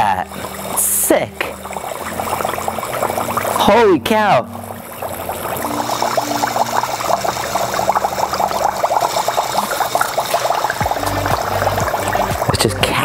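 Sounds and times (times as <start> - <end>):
dry ice bubbling in water: 0.0 - 13.0.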